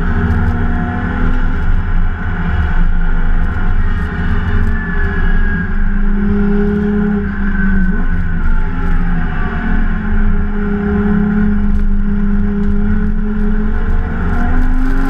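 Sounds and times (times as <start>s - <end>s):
low rumble: 0.0s - 15.0s
race car engine running hard: 0.0s - 15.0s.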